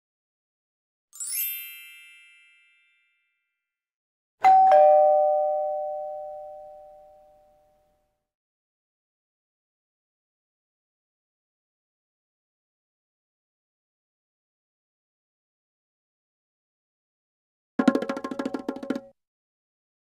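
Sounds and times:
high glittering chime: 0:01.2 - 0:03.4
two-note ding-dong chime: 0:04.4 - 0:07.9.

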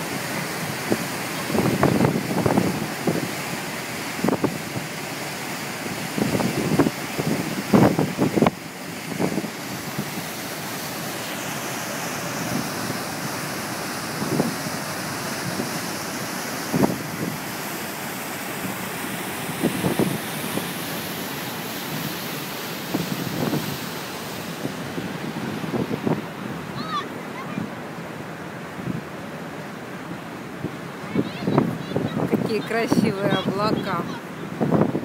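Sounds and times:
wind noise on microphone: 0:00.0 - 0:05.0, 0:05.8 - 0:10.4, 0:12.3 - 0:17.7, 0:18.6 - 0:21.1, 0:21.8 - 0:27.7, 0:30.6 - 0:35.0
wake water churning: 0:00.0 - 0:35.0.

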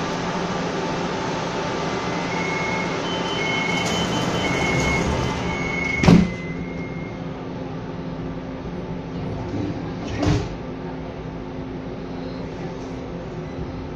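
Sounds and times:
train hum: 0:00.0 - 0:13.9
train door warning tone: 0:01.4 - 0:07.6
sliding doors thudding shut: 0:03.4 - 0:06.7, 0:09.3 - 0:10.6.

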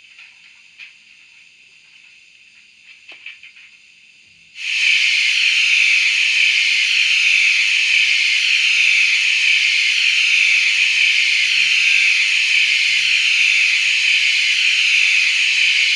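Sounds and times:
steam hiss through small speaker: 0:04.6 - 0:15.9.

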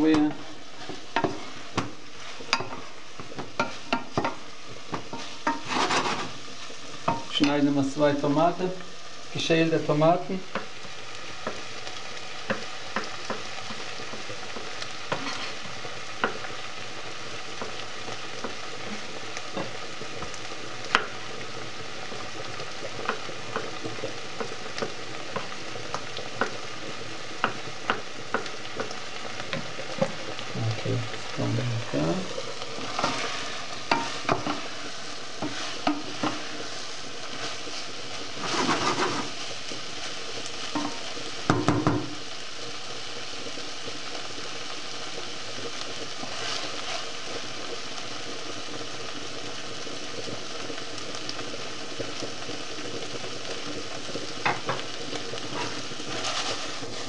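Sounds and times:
food sizzling in a pot: 0:00.0 - 0:57.0
wooden spoon scraping pot: 0:00.2 - 0:07.4, 0:12.5 - 0:16.5, 0:32.3 - 0:39.5, 0:46.2 - 0:47.1, 0:55.4 - 0:57.0.

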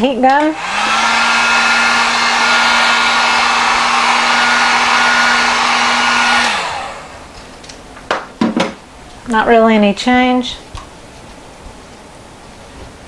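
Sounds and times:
heat gun fan whirring: 0:00.0 - 0:13.0.

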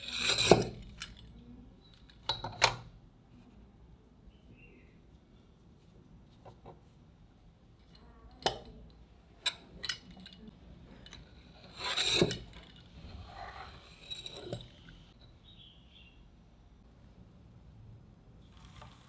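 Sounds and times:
pizza cutter scraping through dough: 0:11.5 - 0:14.6.

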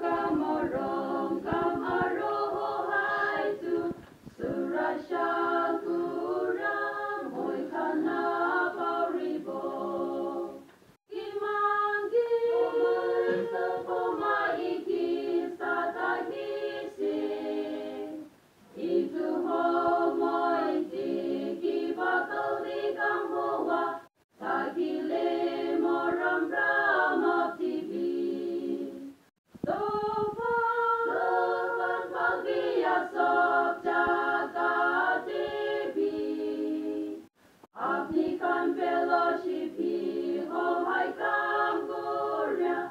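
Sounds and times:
women singing a capella: 0:00.0 - 0:42.9.

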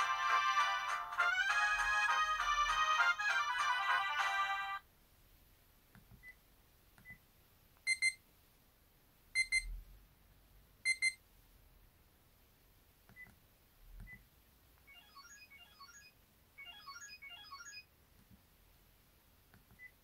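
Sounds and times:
electronic alarm beeps: 0:07.9 - 0:08.2, 0:09.4 - 0:09.7, 0:10.9 - 0:11.2, 0:14.9 - 0:17.8.

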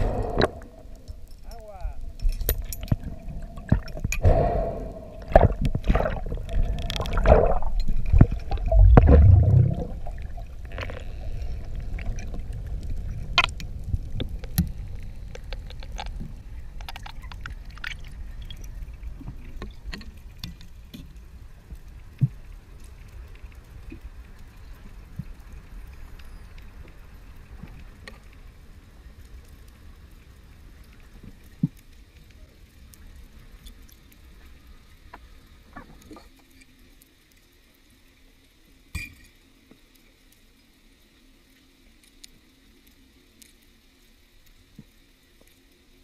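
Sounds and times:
underwater gurgling and rushing: 0:00.0 - 0:38.8
steady underwater hiss: 0:00.0 - 0:46.0.

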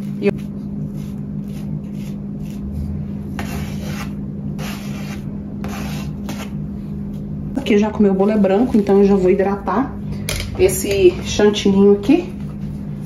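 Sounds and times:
spatula scraping cream: 0:00.0 - 0:06.6
steady low hum: 0:00.0 - 0:13.0.

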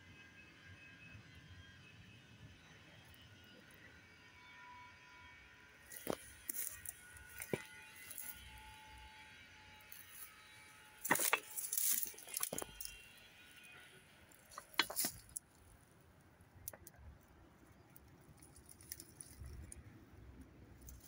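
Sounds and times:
footsteps crunching on dry leaves: 0:05.9 - 0:08.5, 0:11.0 - 0:13.0, 0:14.5 - 0:15.3.

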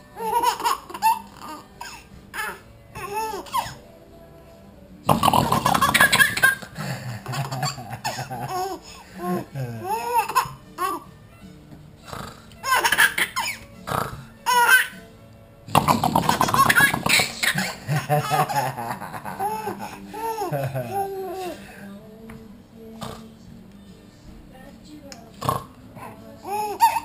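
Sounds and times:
baby laughing: 0:00.2 - 0:03.8, 0:05.1 - 0:11.1, 0:12.6 - 0:13.7, 0:14.4 - 0:15.0, 0:15.7 - 0:21.7, 0:26.0 - 0:27.0.

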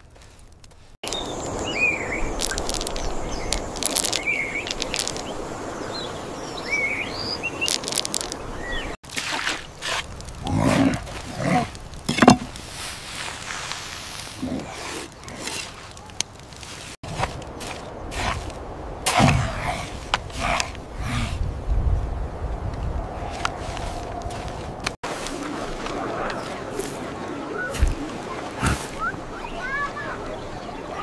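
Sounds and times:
birds chirping: 0:01.0 - 0:09.0, 0:26.0 - 0:31.0
knocks and scrapes: 0:12.0 - 0:14.4, 0:15.4 - 0:20.8.

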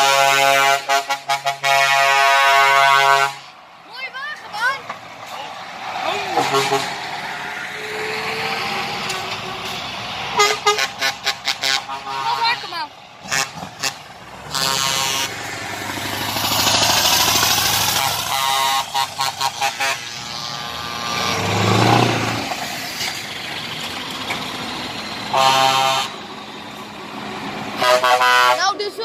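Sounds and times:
air horn blasts: 0:00.0 - 0:03.6, 0:06.3 - 0:07.1, 0:10.3 - 0:15.4, 0:18.0 - 0:21.5, 0:25.3 - 0:26.2, 0:27.8 - 0:28.8
diesel truck engines passing: 0:00.0 - 0:29.0.

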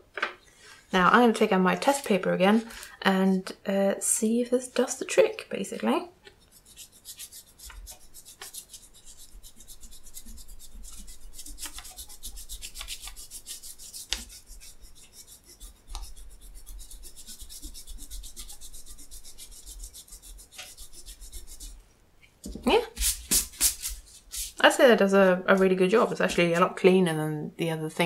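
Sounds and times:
eraser scrubbing on paper: 0:06.4 - 0:21.8, 0:22.9 - 0:24.9.

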